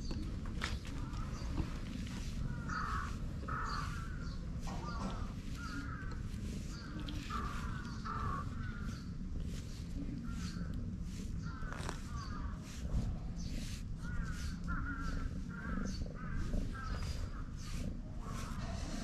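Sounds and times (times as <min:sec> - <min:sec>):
brush rustling through fur: 0:00.2 - 0:19.0
crows cawing: 0:02.5 - 0:09.1, 0:14.0 - 0:19.0.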